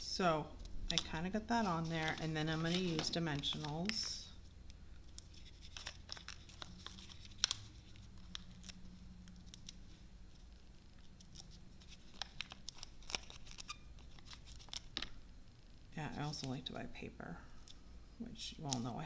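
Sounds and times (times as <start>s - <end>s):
faint low hum: 0.0s - 19.0s
paper rustling: 0.9s - 4.2s, 5.2s - 9.8s.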